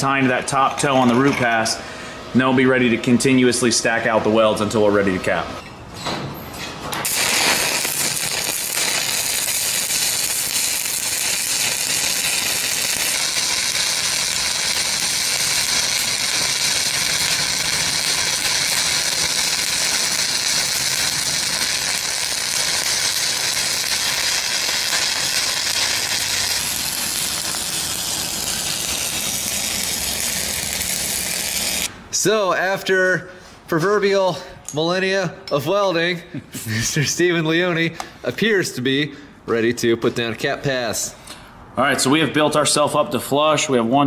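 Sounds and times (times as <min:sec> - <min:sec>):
welding arc crackling and sizzling: 0:06.9 - 0:32.0.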